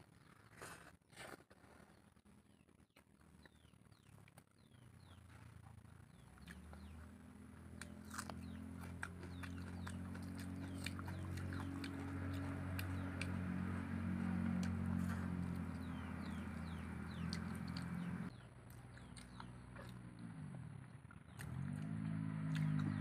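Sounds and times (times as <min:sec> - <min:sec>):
chewing and lip smacks: 0:06.1 - 0:07.0, 0:07.8 - 0:20.3, 0:21.1 - 0:23.0
fingers squelching food: 0:07.7 - 0:20.0.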